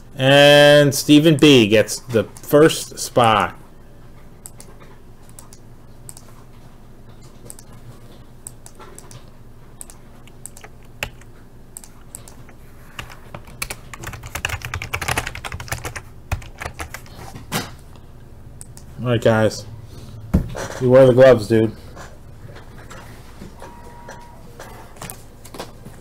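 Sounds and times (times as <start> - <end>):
computer keyboard typing: 4.4 - 6.3, 7.4 - 7.8, 8.4 - 17.3, 18.6 - 18.9.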